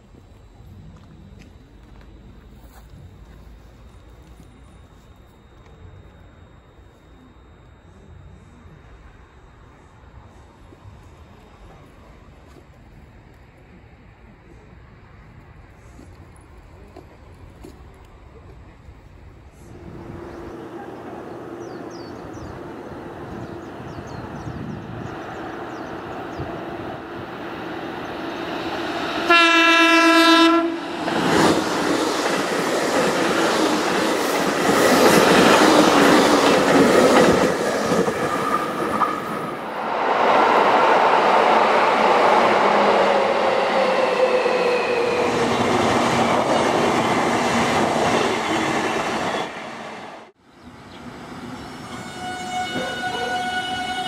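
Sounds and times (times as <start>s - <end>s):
electric train passing: 0.0s - 54.0s
train wheels on rails: 9.7s - 54.0s
train horn blast: 28.9s - 31.1s, 51.9s - 54.0s.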